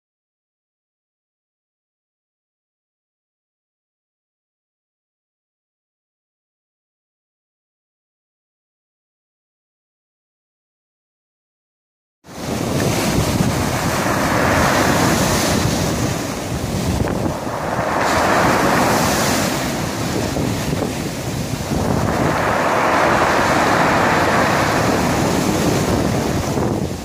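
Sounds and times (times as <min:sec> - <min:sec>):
surf washing over pebbles: 0:12.3 - 0:27.0
wind rumbling on microphone: 0:12.3 - 0:27.0.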